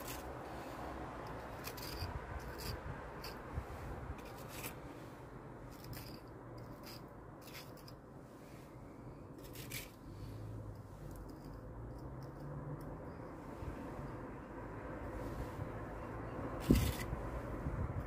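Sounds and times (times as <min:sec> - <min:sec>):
trowel scraping mortar: 0:00.0 - 0:03.4, 0:04.2 - 0:05.1, 0:05.7 - 0:08.0, 0:09.4 - 0:10.0, 0:16.5 - 0:17.2.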